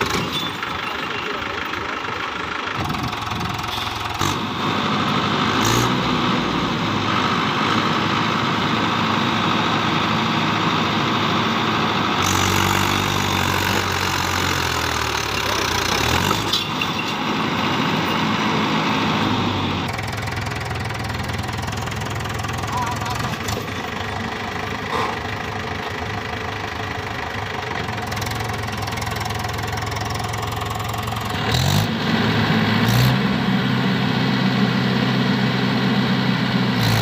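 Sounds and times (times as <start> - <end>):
tractor diesel engine under load: 0.0 - 37.0.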